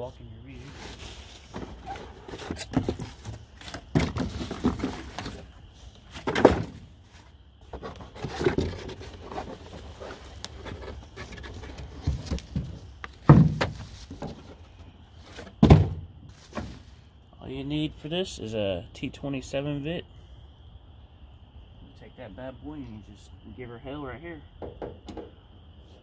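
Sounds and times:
cardboard flaps scraping and rustling: 0:00.6 - 0:17.0
dull thumps on cardboard box: 0:12.0 - 0:14.4.

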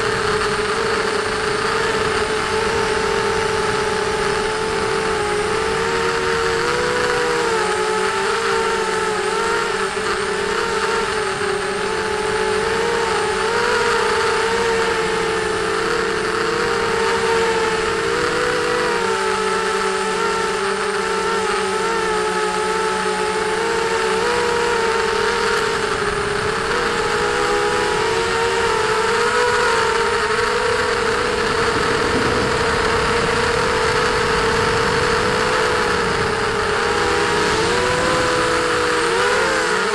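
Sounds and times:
quadcopter motors whining: 0:00.0 - 0:39.9.

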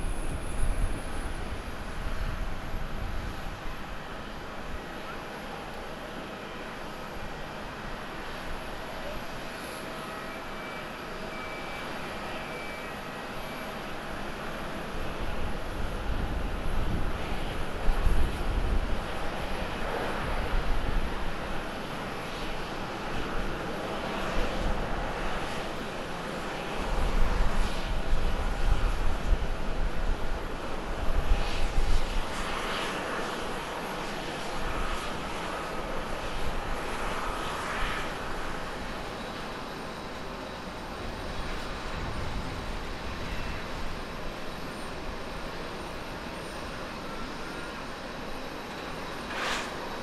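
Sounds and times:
jet engines rumbling: 0:00.0 - 0:50.0.

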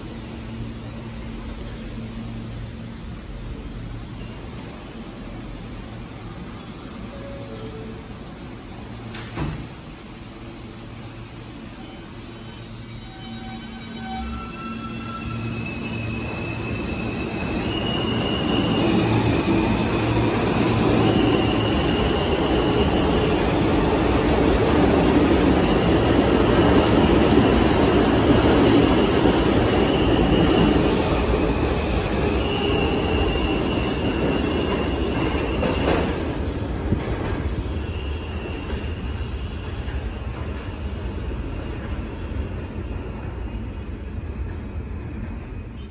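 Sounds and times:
train rumbling and clattering on track: 0:00.0 - 0:45.9
high wheel squeal: 0:11.8 - 0:19.4.

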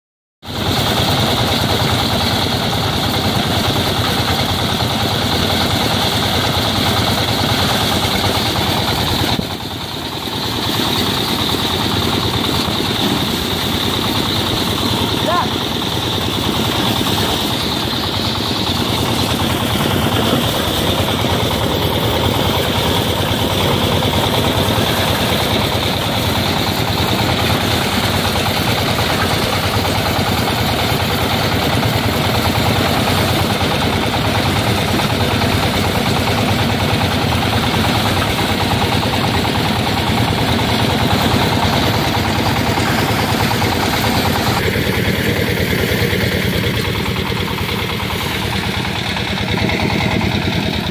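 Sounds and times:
thresher and diesel engine running: 0:00.4 - 0:50.9.

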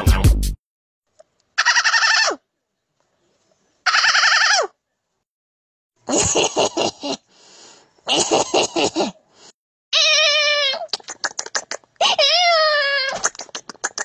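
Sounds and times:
harsh animal-like cries: 0:03.8 - 0:04.8, 0:09.9 - 0:11.3, 0:12.0 - 0:13.3.

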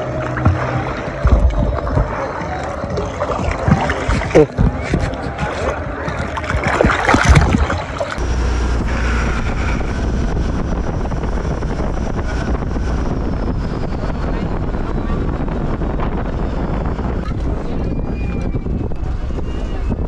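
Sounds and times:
water splashing around swimmer: 0:00.0 - 0:08.2
speedboat motor drone: 0:00.0 - 0:20.0
wind on microphone: 0:00.0 - 0:20.0.

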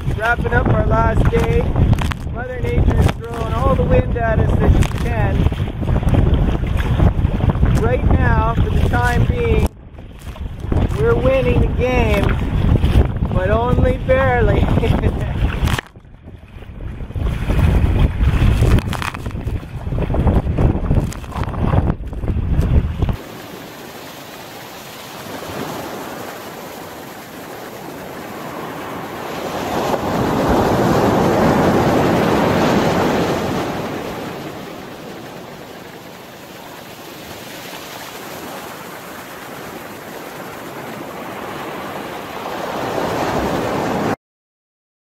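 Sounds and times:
surf washing onto beach: 0:00.0 - 0:15.9, 0:16.7 - 0:44.2
wind buffeting microphone: 0:00.0 - 0:23.7, 0:25.1 - 0:37.4.

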